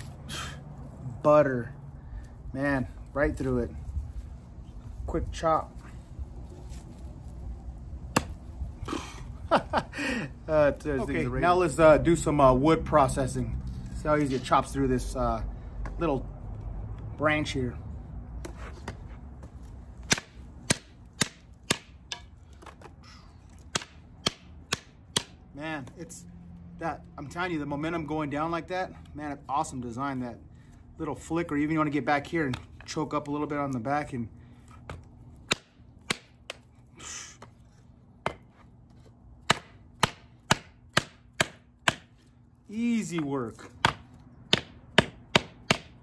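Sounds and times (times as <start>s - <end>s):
knife chopping branch on wood: 8.1s - 8.4s, 18.4s - 26.0s, 34.7s - 36.7s, 38.2s - 42.3s, 43.0s - 46.0s.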